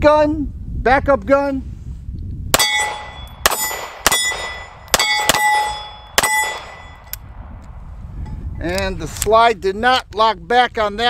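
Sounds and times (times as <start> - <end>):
pistol shots: 2.6 - 7.0
steel plate target clanging: 2.6 - 7.2.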